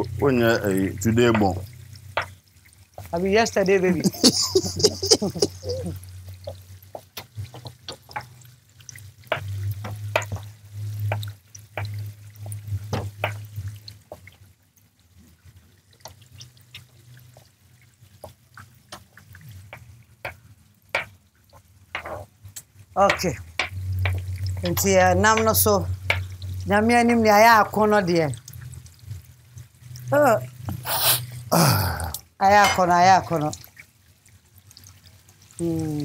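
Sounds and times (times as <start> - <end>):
low steady hum: 0.0 - 14.2, 22.9 - 33.7.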